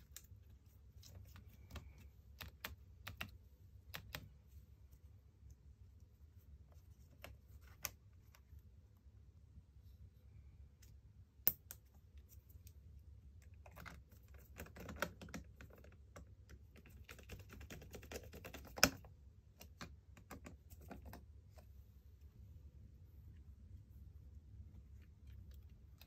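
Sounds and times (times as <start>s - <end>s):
small parts clicking and tapping: 0.0s - 4.4s, 13.4s - 21.3s.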